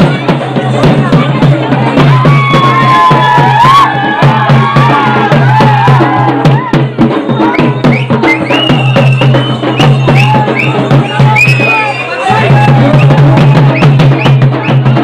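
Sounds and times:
barrel drum beating: 0.0 - 15.0.

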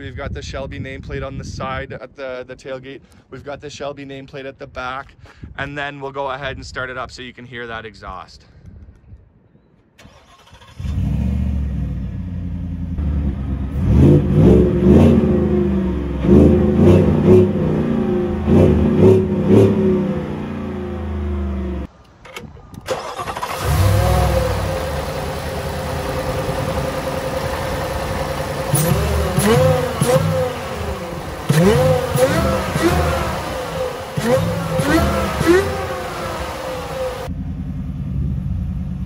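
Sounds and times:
engine starting: 10.0 - 11.5, 22.2 - 24.7
engine idling and revving: 10.0 - 21.9, 23.0 - 39.0.

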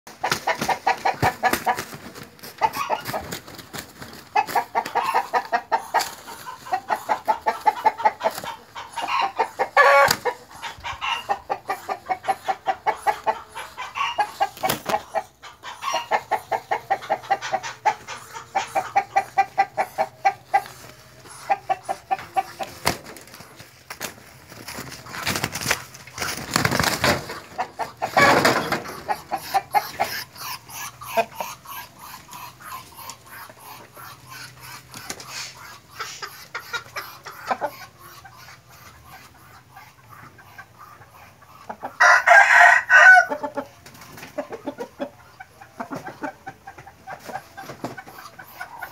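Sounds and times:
birds scuffling thumps: 0.1 - 9.2, 17.3 - 30.2, 45.8 - 48.5
chicken clucking: 0.1 - 48.9.

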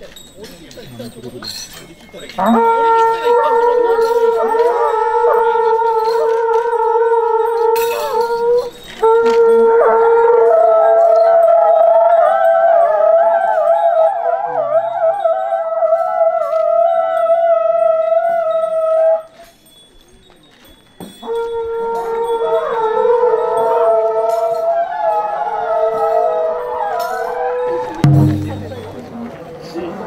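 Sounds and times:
higher-pitched conch: 2.4 - 19.3.

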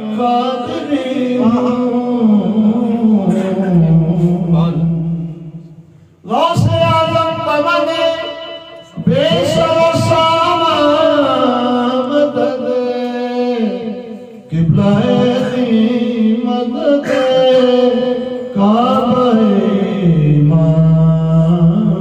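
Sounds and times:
short breaths: 5.8 - 6.2.

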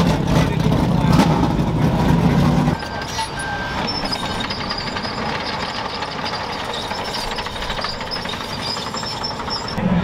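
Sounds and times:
diesel engine running: 0.0 - 10.0
steel tracks clattering: 2.7 - 9.8.

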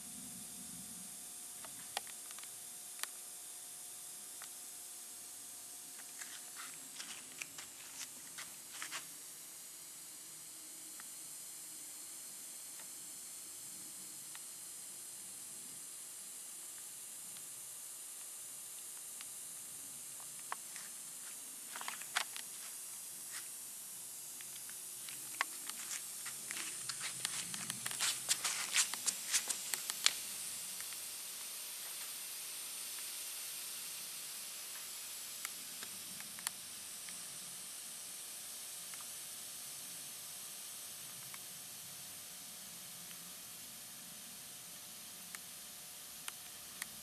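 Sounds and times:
sharp crackles and ticks: 24.4 - 31.0.

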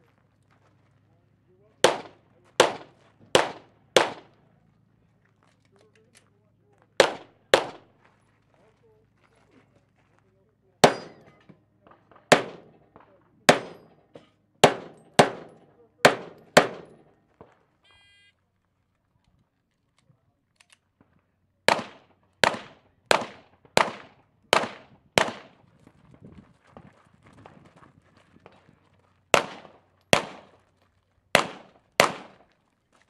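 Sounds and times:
pistol shots: 1.8 - 4.4, 7.0 - 7.9, 10.8 - 17.6, 21.6 - 25.6, 29.3 - 30.6, 31.3 - 32.5
electronic timer beep: 17.8 - 18.4.

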